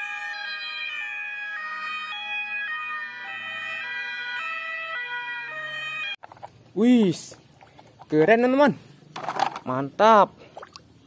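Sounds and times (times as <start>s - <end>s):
two-tone ambulance sirens: 0.0s - 6.2s.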